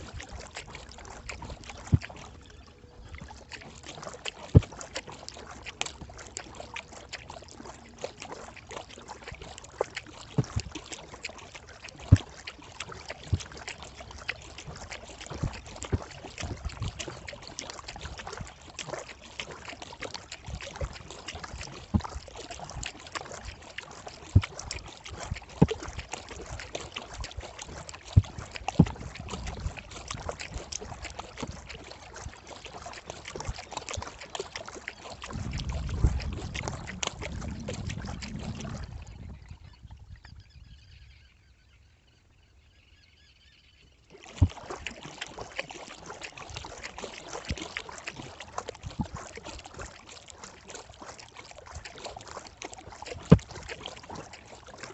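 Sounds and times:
kayak paddle strokes: 0.0s - 40.3s, 44.0s - 54.9s
water dripping off paddle: 0.0s - 40.4s, 44.0s - 54.9s.

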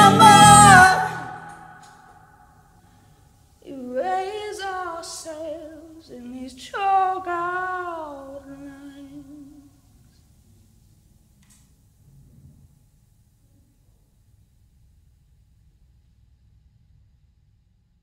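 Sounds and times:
woman singing unaccompanied: 0.0s - 1.8s, 3.6s - 9.7s.

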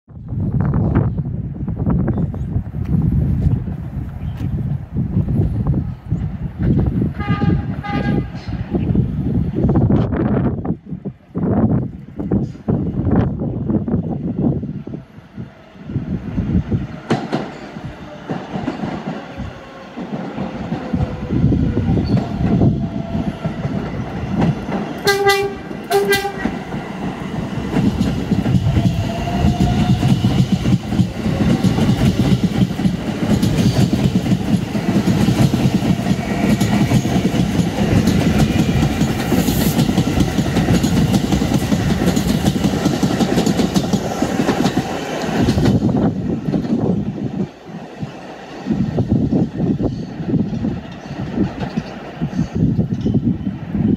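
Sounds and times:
subway train passing: 0.1s - 53.9s
wheel and rail noise: 2.2s - 53.9s
train horn blasts: 7.1s - 8.5s, 25.0s - 26.6s.

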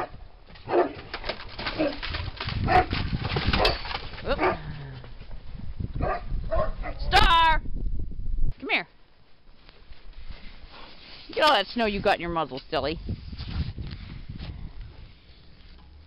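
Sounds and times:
dogs barking and yelping: 0.0s - 1.0s, 2.6s - 4.6s.

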